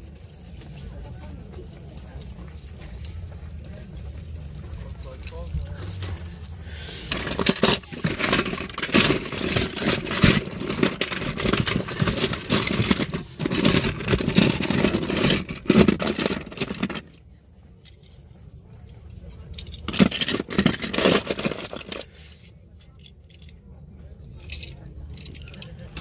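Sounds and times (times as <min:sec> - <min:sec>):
toy cars clattering in plastic tub: 0:04.2 - 0:17.2, 0:19.1 - 0:23.5, 0:24.3 - 0:26.0.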